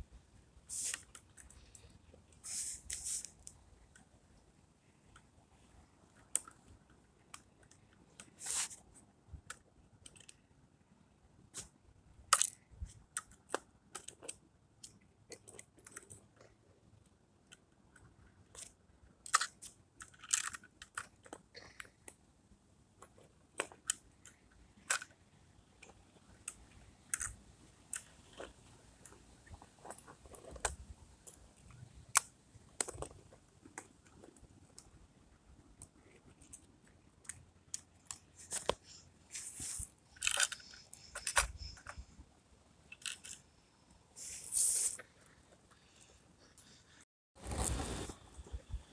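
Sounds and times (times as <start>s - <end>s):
plastic toy parts clicking: 6.1s - 8.6s, 9.4s - 10.5s, 12.3s - 16.4s, 17.0s - 22.2s, 23.0s - 29.2s, 29.8s - 35.0s, 35.8s - 42.1s, 42.9s - 43.4s.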